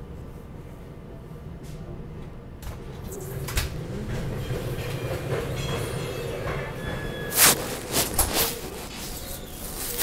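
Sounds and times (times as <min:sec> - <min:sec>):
phone rubbing against clothing: 0:07.3 - 0:10.0.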